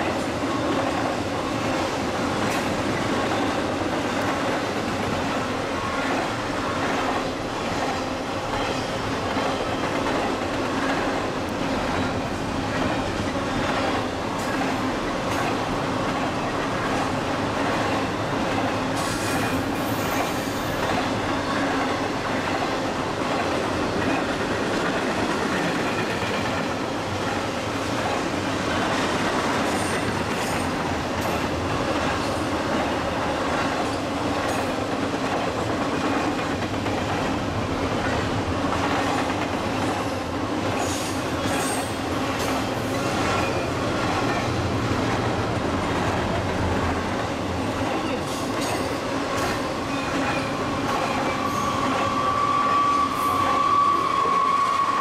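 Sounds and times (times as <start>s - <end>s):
train wheels rumbling on rails: 0.0s - 55.0s
high wheel squeals: 49.9s - 55.0s.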